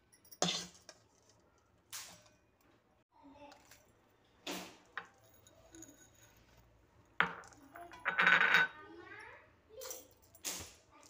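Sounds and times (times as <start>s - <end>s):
steel bowl clinking against metal: 5.0s - 8.8s.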